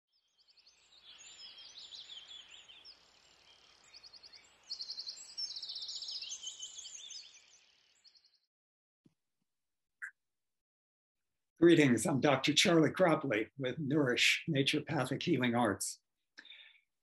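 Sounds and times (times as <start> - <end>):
birds chirping and trilling: 0.3 - 8.5.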